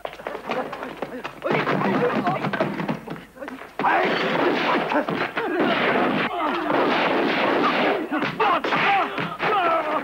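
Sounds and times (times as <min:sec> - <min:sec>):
punch and impact effects: 0:04.0 - 0:09.0
shouting: 0:07.6 - 0:10.0.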